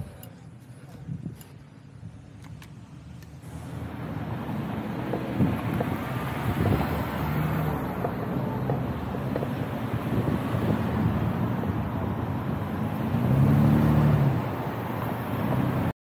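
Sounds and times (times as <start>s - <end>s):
wind rushing over microphone: 4.2s - 15.9s.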